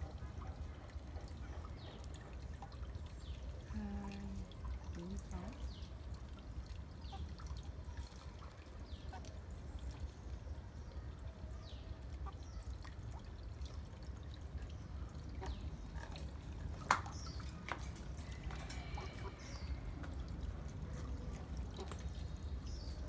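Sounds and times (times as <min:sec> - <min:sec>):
chickens chirping: 0:15.2 - 0:23.0.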